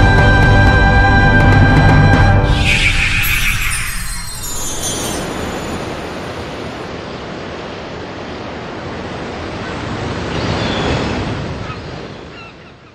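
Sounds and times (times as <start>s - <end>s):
ocean waves breaking: 2.4s - 12.6s.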